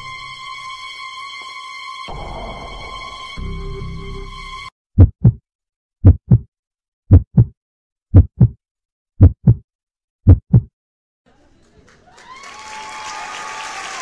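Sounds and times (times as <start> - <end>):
heartbeat double beats: 5.0 - 5.4, 6.0 - 6.5, 7.1 - 8.6, 9.2 - 9.6, 10.2 - 10.7.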